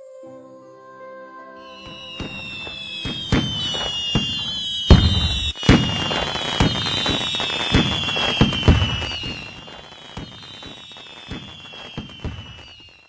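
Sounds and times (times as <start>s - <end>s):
falling firework whistles: 1.6s - 13.0s
firework bangs and crackles: 1.8s - 13.0s.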